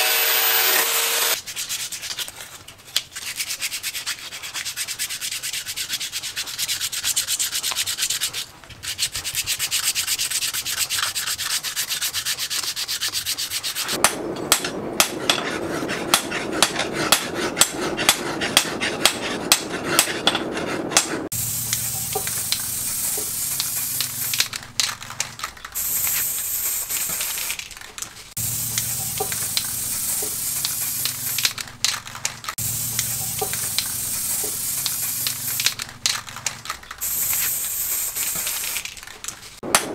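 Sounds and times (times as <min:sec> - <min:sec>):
hand sanding: 0:00.1 - 0:24.9, 0:28.3 - 0:31.8, 0:32.5 - 0:38.8
aerosol spray can hissing: 0:21.3 - 0:24.6, 0:25.8 - 0:27.6, 0:28.4 - 0:31.6, 0:32.6 - 0:35.8, 0:37.0 - 0:38.9
handling noise with sharp clicks: 0:21.7 - 0:39.9.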